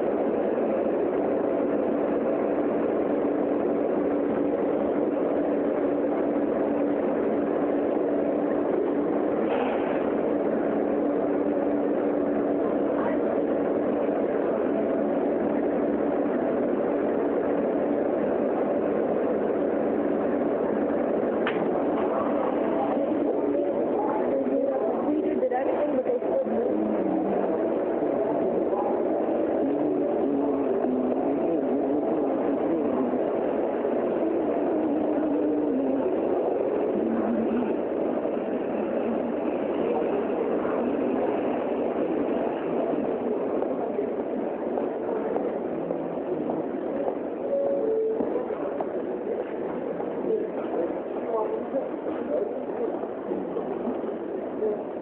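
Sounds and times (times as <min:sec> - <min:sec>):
passengers walking: 0:00.0 - 0:55.0
subway train running: 0:00.0 - 0:55.0.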